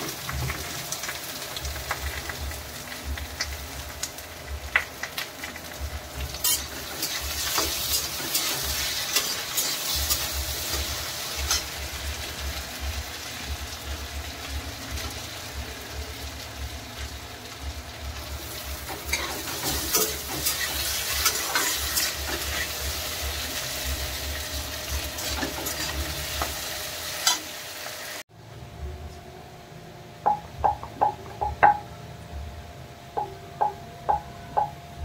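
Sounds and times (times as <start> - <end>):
food sizzling in a pan: 0.0 - 28.3.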